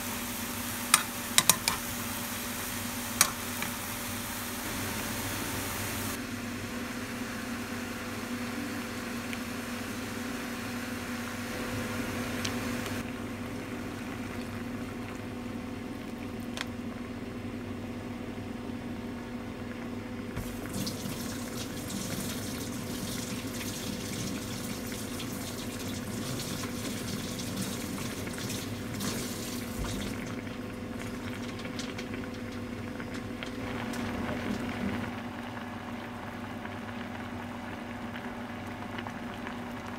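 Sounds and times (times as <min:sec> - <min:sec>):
stir-fry bubbling in a pan: 0:00.0 - 0:12.4, 0:20.4 - 0:39.9.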